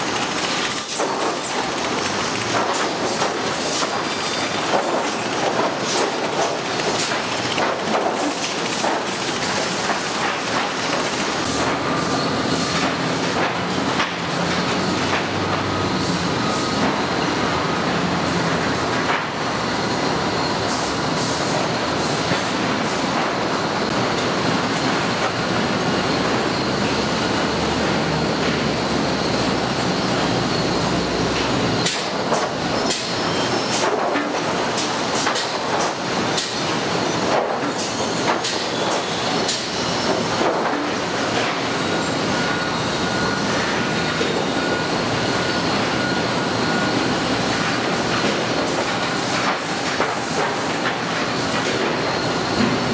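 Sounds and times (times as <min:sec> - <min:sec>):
conveyor chains and machinery din: 0:00.0 - 0:52.9.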